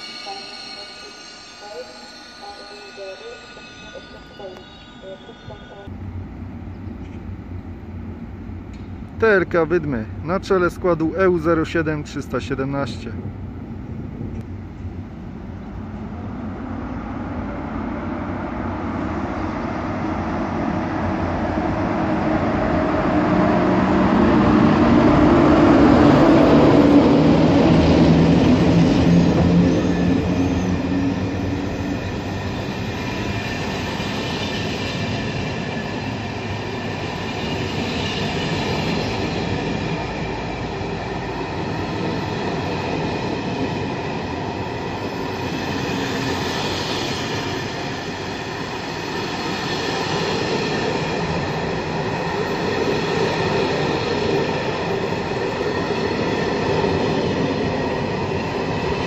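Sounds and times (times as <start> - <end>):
high-pitched squealing: 0.0 - 5.9
electric locomotive rumble: 0.0 - 12.2, 12.8 - 59.0.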